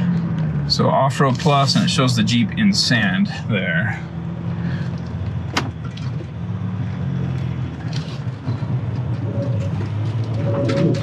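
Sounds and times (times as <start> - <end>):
diesel truck engine under load: 0.0 - 11.0
wheels spinning on dirt: 6.5 - 11.0.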